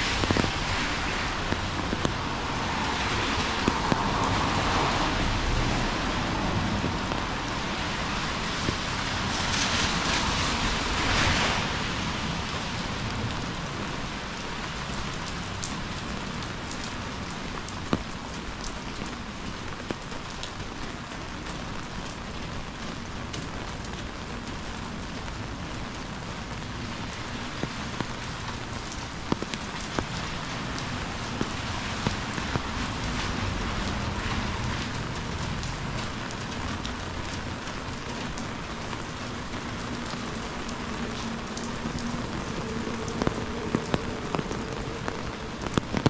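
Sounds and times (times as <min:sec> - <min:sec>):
heavy rain on street: 0:00.0 - 0:46.0
raindrops ticking near microphone: 0:00.0 - 0:46.0.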